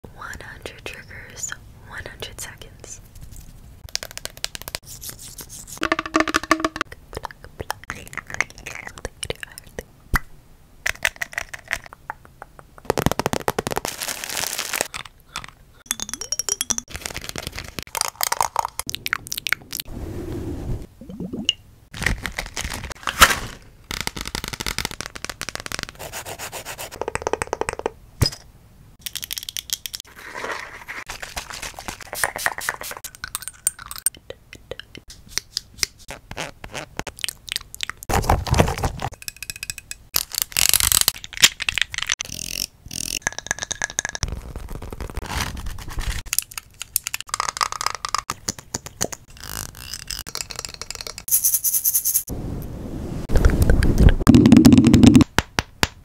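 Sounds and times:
scratching on microphone: 0:44.2 - 0:46.2.

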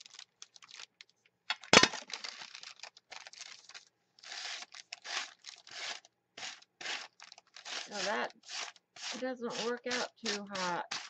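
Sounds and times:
paper pages rustling: 0:02.0 - 0:09.7
ink pad scraping on paper: 0:04.4 - 0:11.0.

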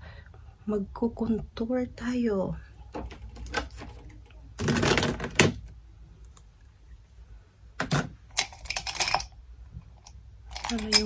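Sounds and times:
makeup items clattering: 0:07.8 - 0:09.3, 0:10.5 - 0:11.0.

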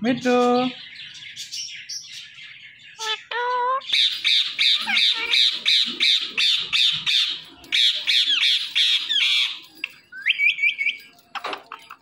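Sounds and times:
parrot squawking: 0:02.9 - 0:09.6
parrot chirps: 0:02.9 - 0:11.0.

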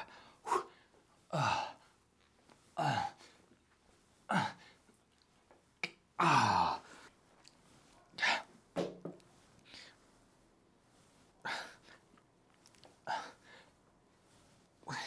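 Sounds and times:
man grunting with effort: 0:06.2 - 0:06.8.

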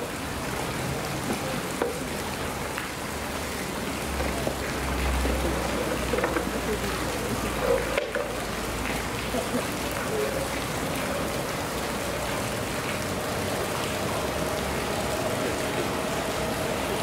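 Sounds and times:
faint voices: 0:03.7 - 0:17.0.

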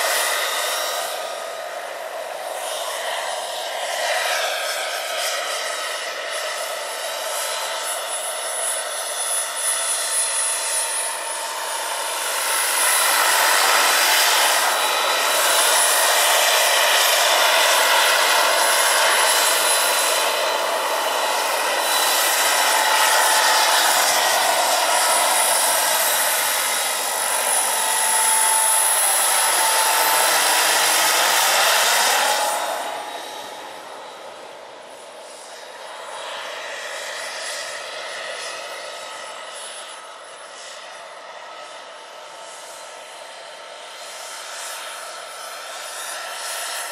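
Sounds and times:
helicopter turbine whine: 0:00.0 - 0:46.9
rushing rotor noise: 0:00.0 - 0:46.9.

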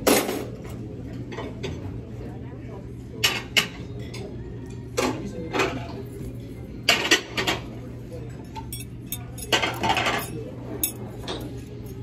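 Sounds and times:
dishes and cutlery clattering: 0:06.8 - 0:12.0.

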